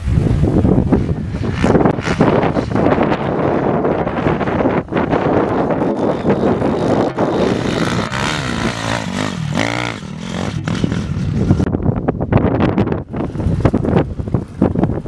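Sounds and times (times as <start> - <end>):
dirt bike engines revving: 0.4 - 11.8.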